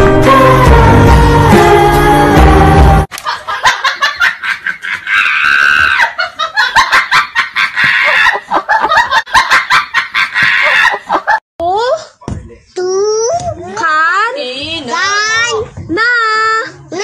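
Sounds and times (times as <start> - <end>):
loud rapid laughter: 3.2 - 11.4.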